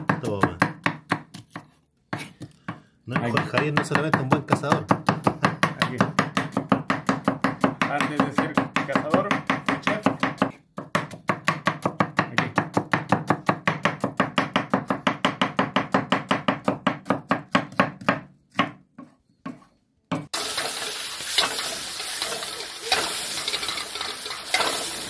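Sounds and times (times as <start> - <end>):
knife chopping on cutting board: 0.0 - 19.1
food sizzling in hot oil: 20.3 - 25.0.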